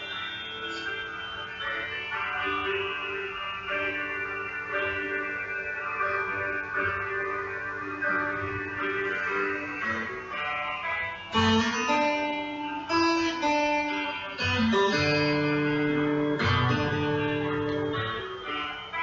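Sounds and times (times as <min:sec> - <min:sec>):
plucked guitar music: 0:06.3 - 0:19.0.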